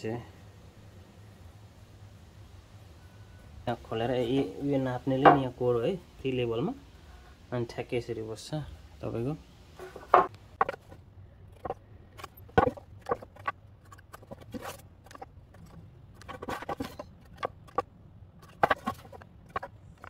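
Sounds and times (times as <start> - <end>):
wooden block knocking on board: 5.2 - 5.5, 10.0 - 10.8.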